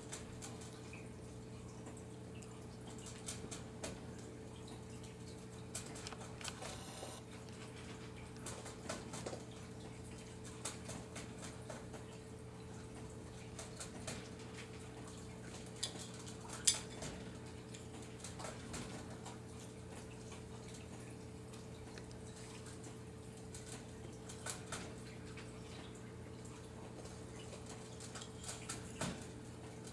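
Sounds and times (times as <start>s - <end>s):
steady low hum: 0.0s - 16.7s.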